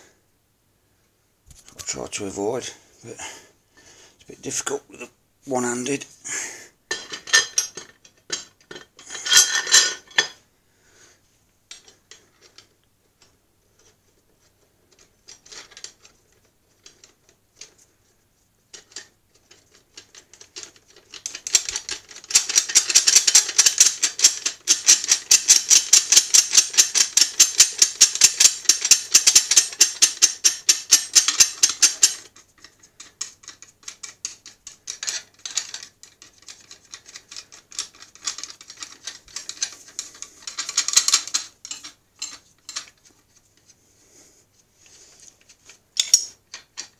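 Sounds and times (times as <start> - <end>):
metal parts knocking: 21.2 - 32.2, 33.0 - 43.0, 46.0 - 46.9.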